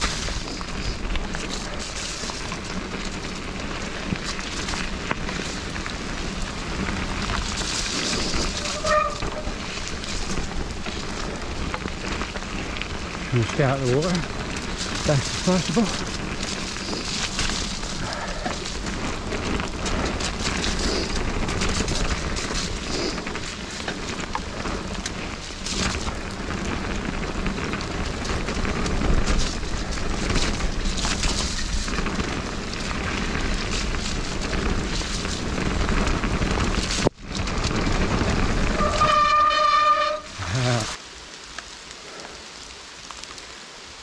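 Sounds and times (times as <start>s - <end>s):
bike clicks and rattles: 0.0s - 41.0s
tyres rushing on wet ground: 0.0s - 44.0s.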